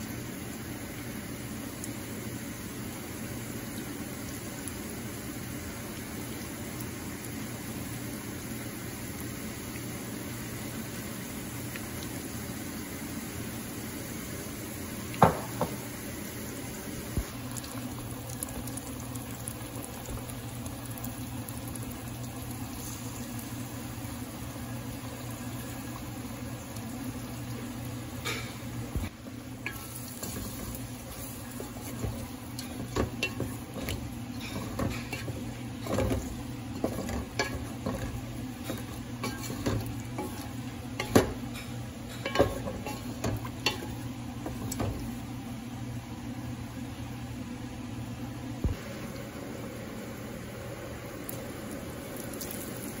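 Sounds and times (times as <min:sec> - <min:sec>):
vegetables sizzling in a pot: 0:00.0 - 0:46.7, 0:48.6 - 0:53.0
wooden spatula scraping a pot: 0:29.7 - 0:41.3.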